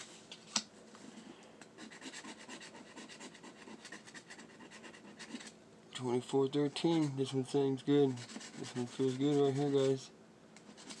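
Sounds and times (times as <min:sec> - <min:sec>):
lottery ticket being scratched: 0:07.9 - 0:11.0.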